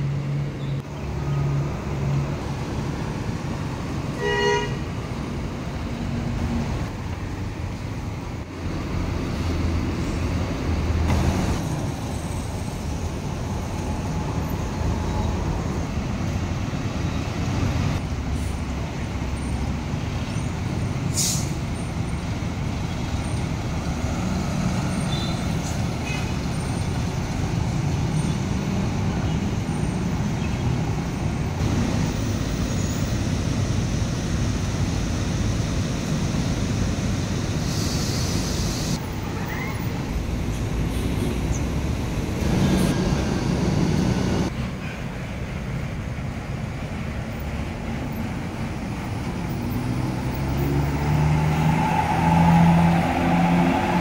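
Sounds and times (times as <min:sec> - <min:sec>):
bus diesel engines rumbling: 0:00.0 - 0:54.0
short hiss: 0:21.1 - 0:21.6.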